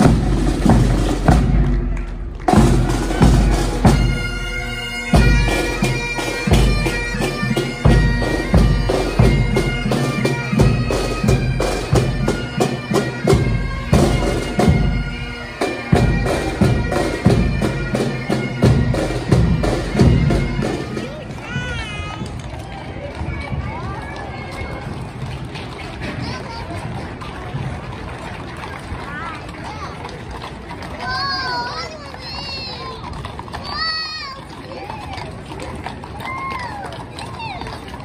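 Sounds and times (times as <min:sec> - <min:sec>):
snare and bass drums: 0:00.0 - 0:04.5
bagpipes playing a tune: 0:00.0 - 0:21.4.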